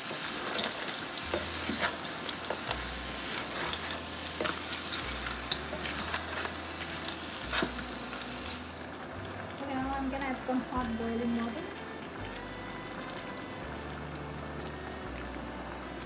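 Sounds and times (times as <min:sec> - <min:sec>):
spatula scraping the pan: 0:00.0 - 0:08.7
curry sizzling in a wok: 0:00.0 - 0:16.0.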